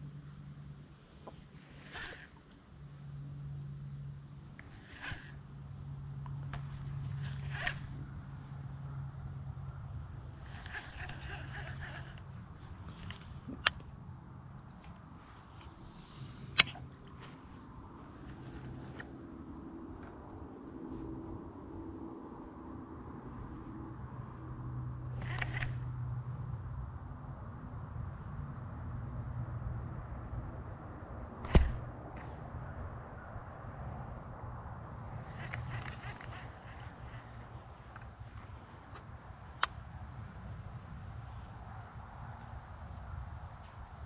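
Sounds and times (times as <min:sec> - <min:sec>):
faint insect drone: 0:00.0 - 0:44.0
sharp clicks: 0:25.2 - 0:25.9, 0:31.4 - 0:31.9, 0:35.3 - 0:37.2.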